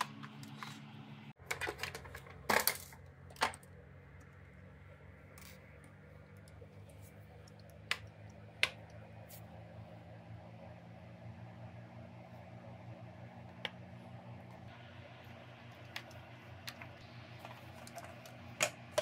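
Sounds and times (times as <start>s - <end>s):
low steady hum: 0.0s - 19.0s
plastic parts clicking and clattering: 1.4s - 4.3s.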